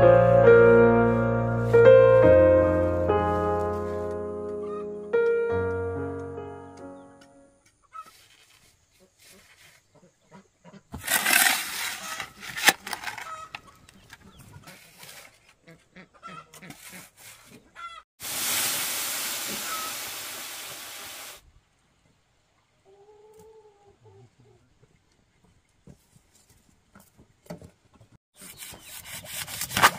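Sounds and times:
shovel scraping sandy floor: 11.0 - 13.4, 14.6 - 15.6, 16.6 - 17.6, 28.4 - 29.9
hens clucking: 13.0 - 15.0, 15.6 - 18.0.

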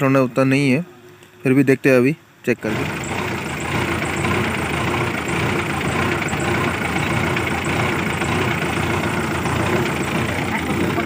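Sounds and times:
diesel engine running steadily: 2.5 - 11.0.

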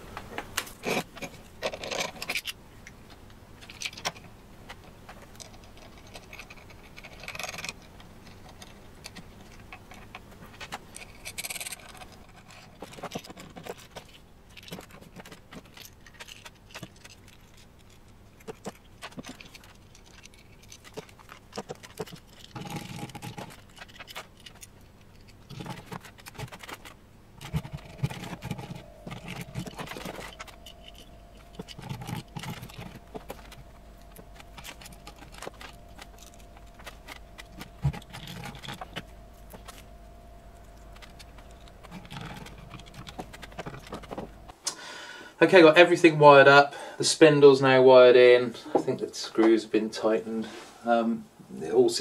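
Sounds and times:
metal parts clinking on wood: 3.6 - 44.5.

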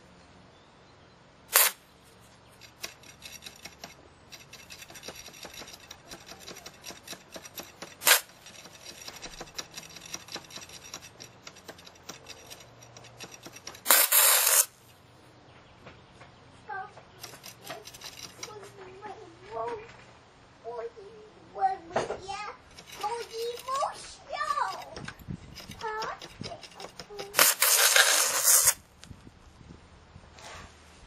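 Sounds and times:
welding arc crackling: 1.5 - 1.8, 7.4 - 9.1, 13.2 - 14.7, 27.3 - 28.8.

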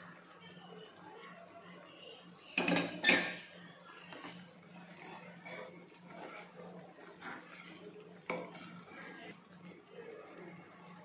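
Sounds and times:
spoon stirring thick mixture: 0.2 - 11.0
spoon clanking against pan: 2.6 - 3.4, 8.2 - 8.7.

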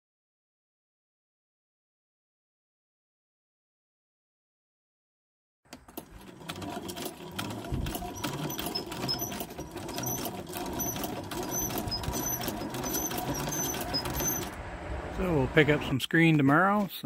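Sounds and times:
sewing machine running: 5.7 - 14.6.

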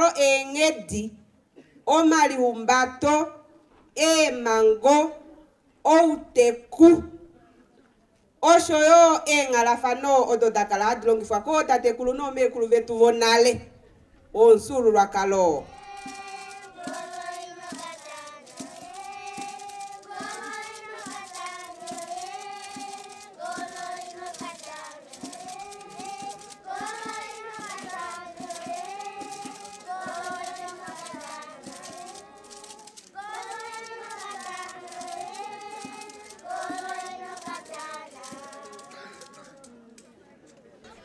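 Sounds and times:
children singing in unison: 15.7 - 39.9.

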